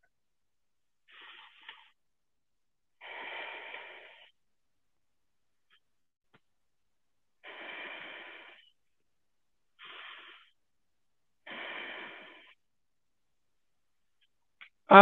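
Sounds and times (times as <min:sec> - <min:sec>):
man breathing deeply: 0:03.0 - 0:04.4, 0:07.4 - 0:08.8, 0:09.8 - 0:10.6, 0:11.4 - 0:12.6.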